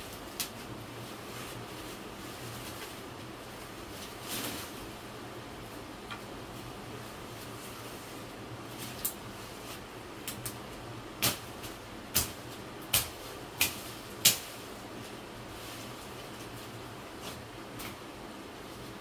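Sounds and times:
steady background hiss: 0.0 - 19.0.

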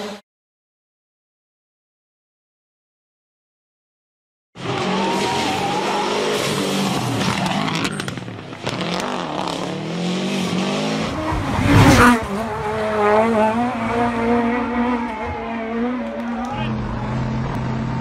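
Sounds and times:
rally car engines revving: 4.6 - 18.0.

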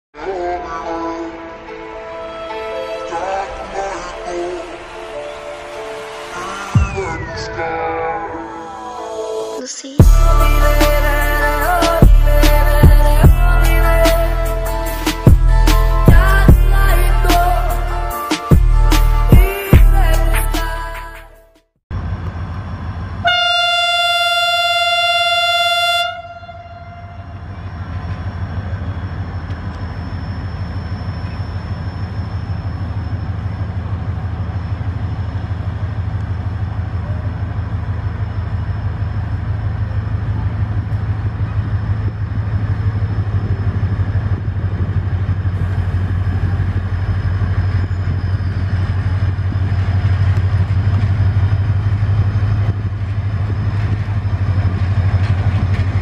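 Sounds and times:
locomotive engine rumble: 10.0 - 21.2, 21.9 - 56.0
locomotive horn blast: 23.2 - 27.6.

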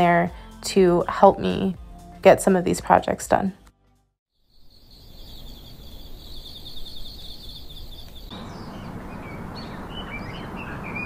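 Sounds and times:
crickets chirping: 4.4 - 11.0
songbirds chirping: 4.4 - 11.0
steady outdoor rush: 8.3 - 11.0.

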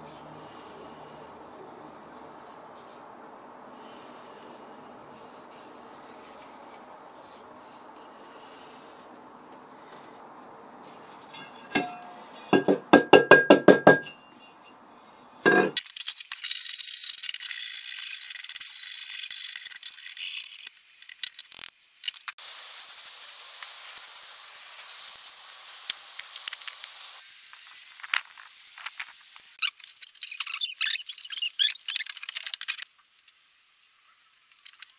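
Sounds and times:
steel tool scraping rust: 11.2 - 15.8
metallic clinks on cast iron: 11.3 - 14.7.

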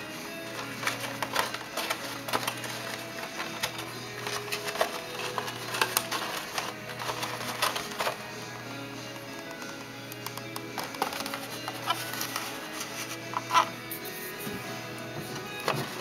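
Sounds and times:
background music: 0.0 - 16.0
model car and box clicking: 0.4 - 8.4, 9.1 - 13.8.

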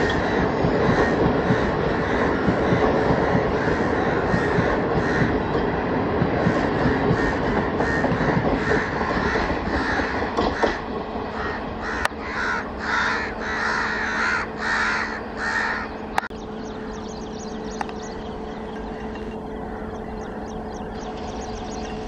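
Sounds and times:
crows cawing: 0.0 - 5.5, 6.5 - 16.0, 18.9 - 20.5
passenger train rumbling: 0.0 - 22.0.

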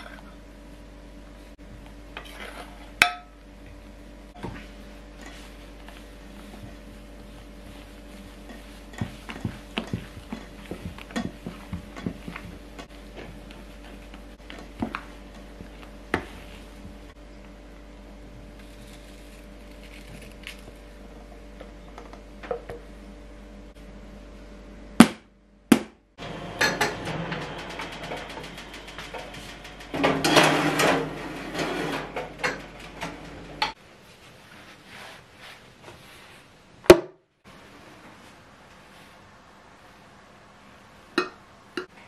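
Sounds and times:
utensil scraping a metal bowl: 2.2 - 3.0.

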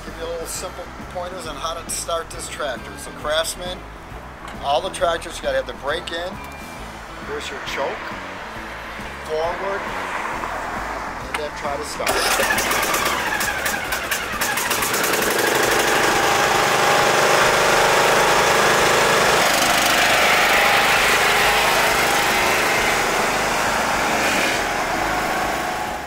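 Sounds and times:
lawn tractor engine running: 12.0 - 26.0.

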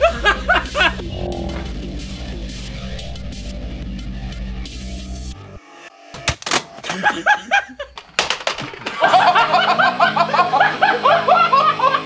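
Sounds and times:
people laughing and giggling: 0.0 - 1.0, 6.8 - 8.0, 8.8 - 12.0.

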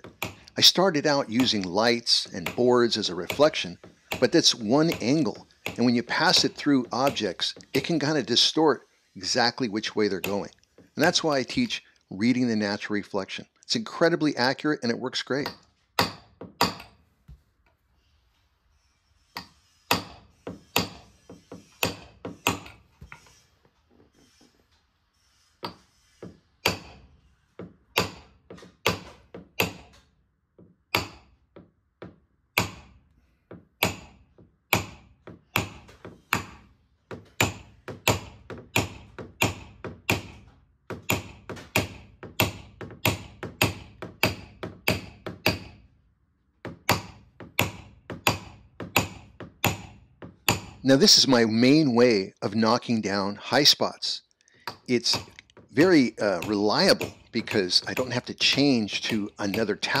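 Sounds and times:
hammer tapping on metal: 27.6 - 30.0, 30.9 - 32.9, 33.5 - 45.8, 46.6 - 50.8, 54.7 - 60.0.

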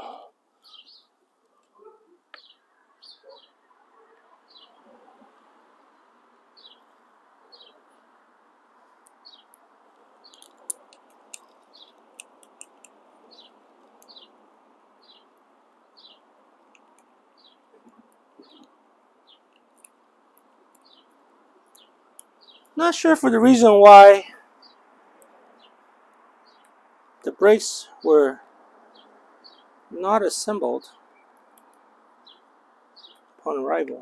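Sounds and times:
bird chirping: 0.0 - 8.1, 8.8 - 34.0
faint background noise: 0.0 - 34.0
sharp little clicks: 10.3 - 14.2.

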